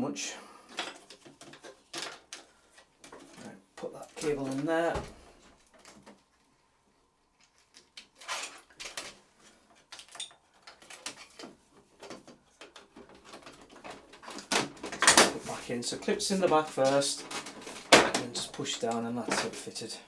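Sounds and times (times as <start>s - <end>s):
plastic clicks and knocks: 9.8s - 15.4s.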